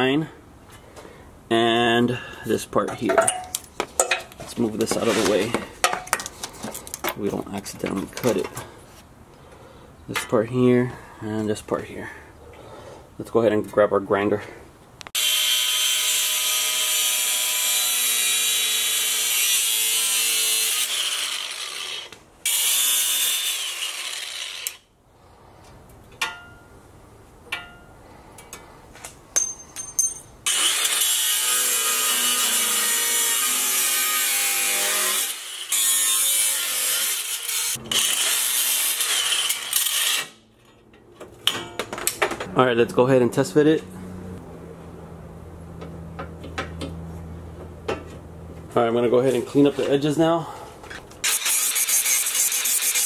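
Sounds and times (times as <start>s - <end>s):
angle grinder cutting steel: 15.2s - 24.8s, 30.5s - 40.4s, 51.2s - 53.0s.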